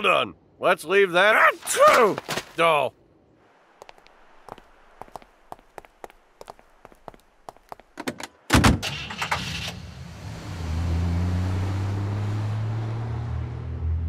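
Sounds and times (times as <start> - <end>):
footstep clicks: 3.8 - 8.3
car engine starting and running: 8.6 - 14.0.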